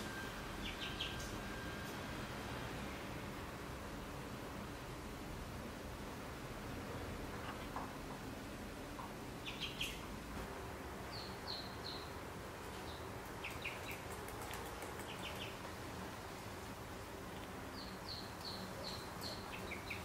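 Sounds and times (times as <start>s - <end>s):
ducklings peeping: 9.4s - 10.0s, 12.8s - 15.6s, 17.8s - 20.0s.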